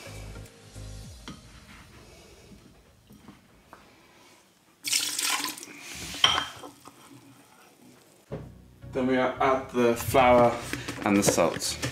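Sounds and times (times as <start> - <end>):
water pouring into metal bowl: 4.8 - 5.8.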